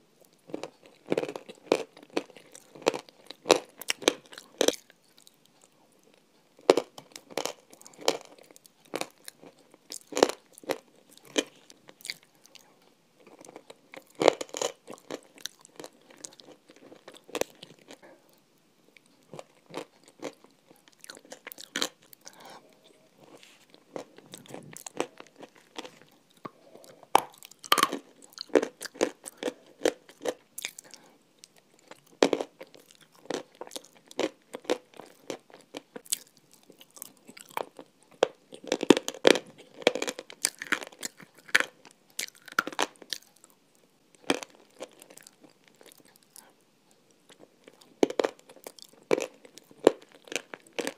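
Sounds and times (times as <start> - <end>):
crunchy eating and chewing: 0.2 - 50.9.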